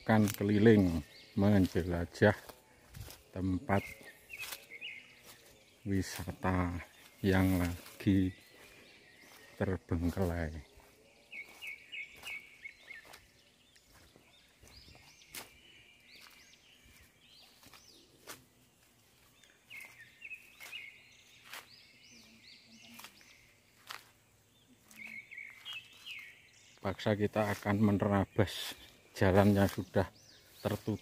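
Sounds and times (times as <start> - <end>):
birds chirping: 0.0 - 31.0
footfalls through grass: 2.5 - 3.2, 3.8 - 6.4, 10.1 - 13.2, 16.2 - 16.4.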